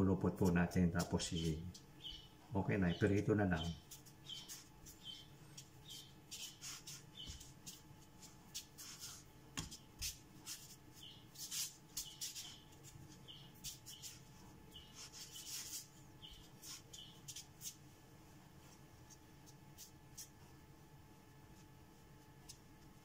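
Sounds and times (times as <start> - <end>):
dough rubbing on board: 3.8 - 17.8.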